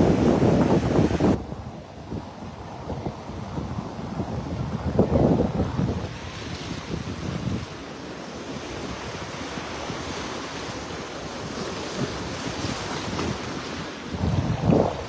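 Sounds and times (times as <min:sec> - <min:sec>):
surf washing over rocks: 0:00.0 - 0:15.0
wind gusting on microphone: 0:00.0 - 0:15.0.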